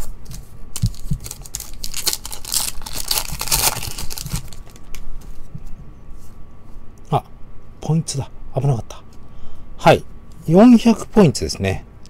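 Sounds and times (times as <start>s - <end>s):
foil wrapper crinkling and tearing: 0.8s - 5.0s.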